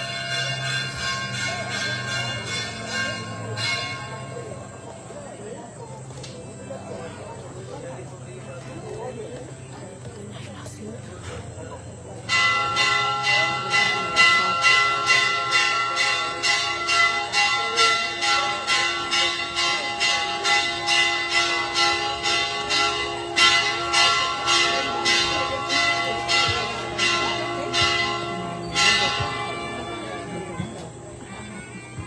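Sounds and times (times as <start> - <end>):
church bells ringing rapid peal: 0.0 - 4.7, 12.2 - 30.9.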